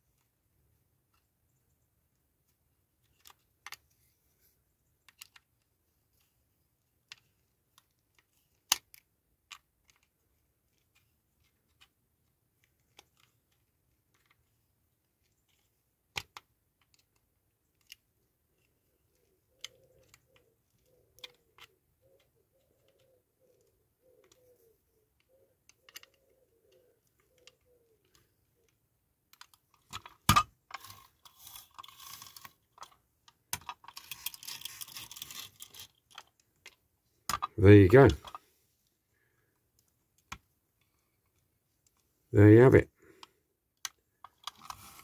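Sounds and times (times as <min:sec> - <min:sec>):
clicks and taps of toy parts: 0:03.0 - 0:04.0, 0:04.9 - 0:06.3, 0:07.0 - 0:12.0, 0:12.6 - 0:14.5, 0:15.2 - 0:24.5, 0:25.1 - 0:38.4, 0:39.6 - 0:42.1, 0:43.1 - 0:45.0
bird cooing faintly: 0:19.0 - 0:28.8.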